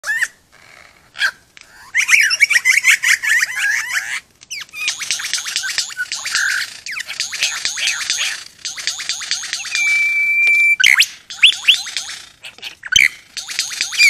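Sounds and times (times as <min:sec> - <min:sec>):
bird singing whistled notes: 0:02.0 - 0:02.8, 0:04.5 - 0:14.0.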